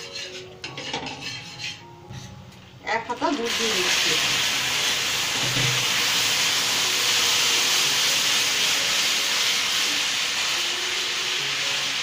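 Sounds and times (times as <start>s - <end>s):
cooking hiss in hot pan: 3.1s - 12.0s.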